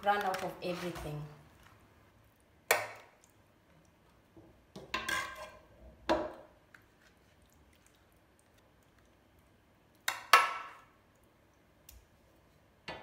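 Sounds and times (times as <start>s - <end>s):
spoon clinking and scraping pot: 4.8s - 5.7s.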